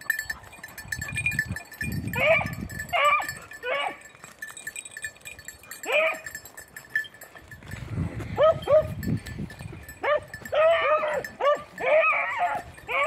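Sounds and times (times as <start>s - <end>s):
beagles baying: 2.1s - 4.1s, 5.7s - 6.5s, 9.9s - 13.0s.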